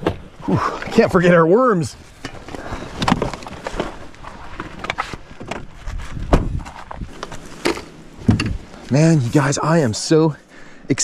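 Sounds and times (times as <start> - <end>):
loud thump: 6.3 - 6.6.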